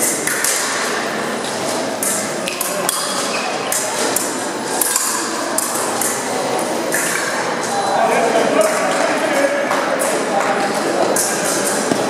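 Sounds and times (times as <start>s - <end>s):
steady background noise: 0.0s - 12.0s.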